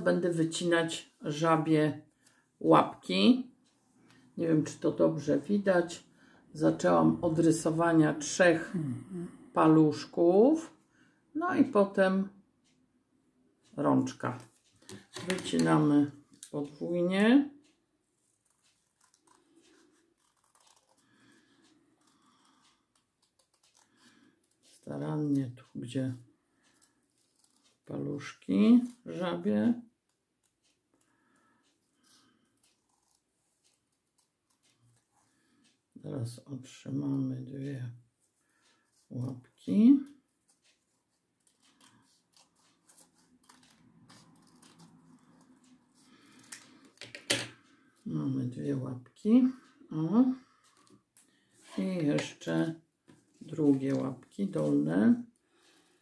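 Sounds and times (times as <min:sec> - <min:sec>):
scissors cutting paper: 0:18.4 - 0:24.8, 0:26.7 - 0:27.8, 0:32.6 - 0:35.1, 0:40.4 - 0:47.2.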